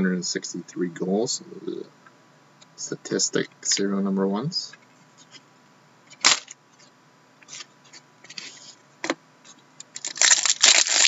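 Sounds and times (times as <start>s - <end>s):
cards rustling: 6.1s - 8.8s, 9.9s - 11.0s.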